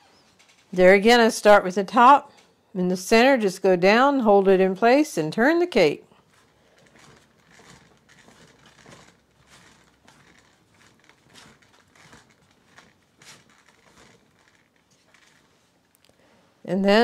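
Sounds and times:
icing comb scraping buttercream: 0:06.2 - 0:15.9.

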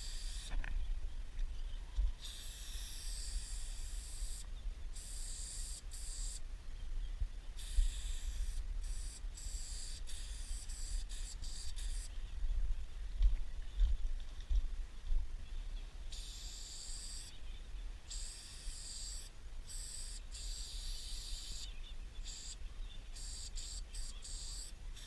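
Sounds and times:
spray paint can hissing: 0:00.0 - 0:00.5, 0:02.2 - 0:04.4, 0:05.0 - 0:06.4, 0:07.6 - 0:12.1, 0:16.1 - 0:17.3, 0:18.1 - 0:21.7, 0:22.3 - 0:22.6, 0:23.2 - 0:25.0.

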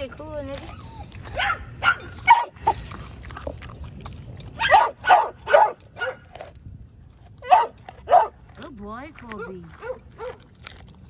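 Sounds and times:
dog barking: 0:01.4 - 0:02.5, 0:04.6 - 0:06.3, 0:07.4 - 0:08.4.

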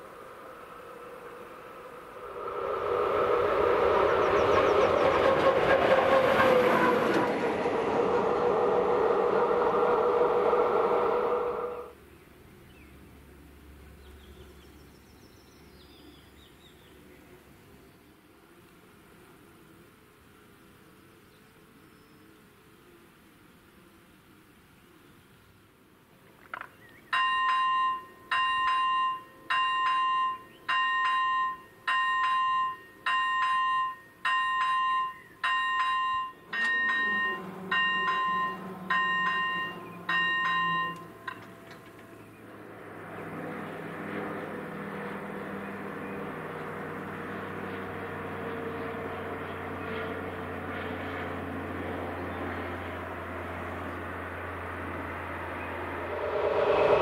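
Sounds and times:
passenger train rumble: 0:00.0 - 0:12.0, 0:27.4 - 0:50.7, 0:51.3 - 0:57.0
level-crossing warning bell: 0:27.1 - 0:41.8.

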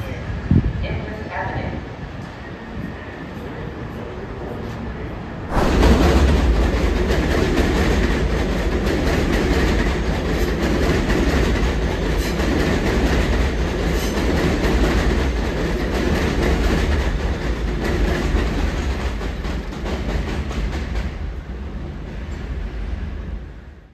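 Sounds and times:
elevated train rumbling: 0:00.0 - 0:23.9
train wheels clacking on rail joints: 0:05.5 - 0:21.4.

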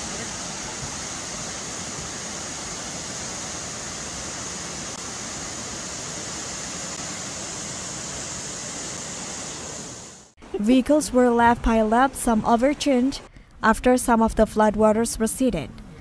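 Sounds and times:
floodwater rushing: 0:00.0 - 0:10.3.

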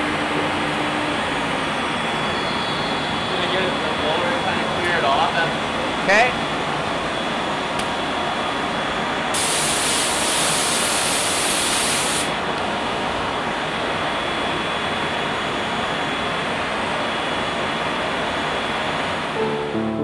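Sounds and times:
hiss of air: 0:09.3 - 0:12.4.

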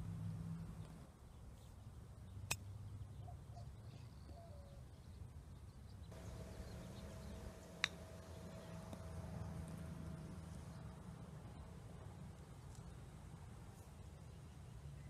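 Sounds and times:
faint low wind rumble: 0:00.0 - 0:15.0
faint bird chirps: 0:00.7 - 0:08.8
golf club striking ball: 0:06.2 - 0:10.4.

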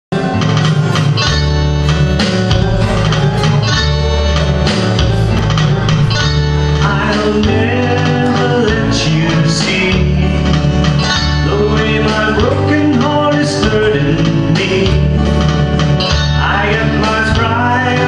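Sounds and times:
bass line: 0:00.1 - 0:18.0
guitar strummed and picked: 0:00.1 - 0:18.0
man singing into microphone: 0:06.8 - 0:15.4, 0:16.3 - 0:18.0.

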